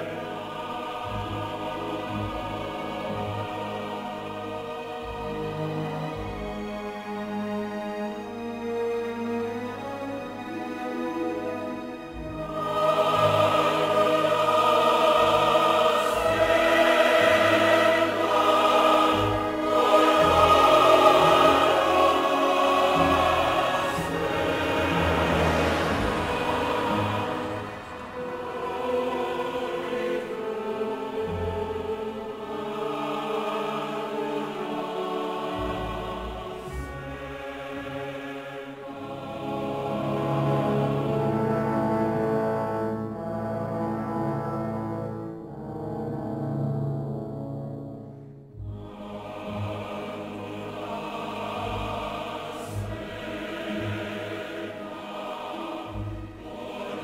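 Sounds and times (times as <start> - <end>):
slow soundtrack music with choir: 0.0 - 57.0
deep bass notes: 24.3 - 29.2.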